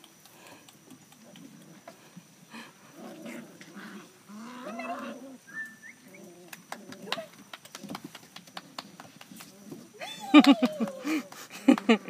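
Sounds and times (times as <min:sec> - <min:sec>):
puppies growling: 0:02.8 - 0:05.4.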